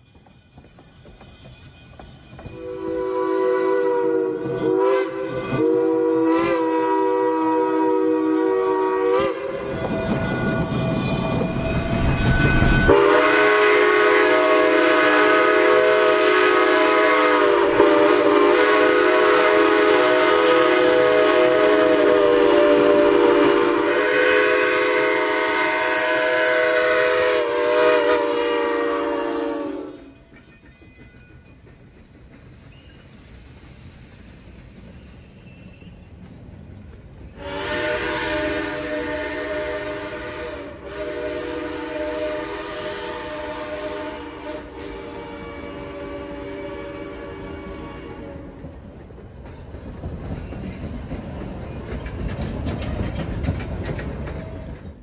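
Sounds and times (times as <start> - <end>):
steam whistle chime: 0.0 - 30.5, 37.4 - 48.6
train running noise: 0.0 - 55.0.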